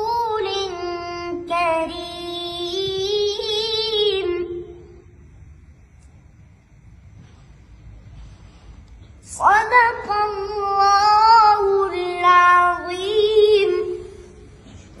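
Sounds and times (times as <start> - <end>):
boy reciting melodically: 0.0 - 5.0, 9.1 - 15.0.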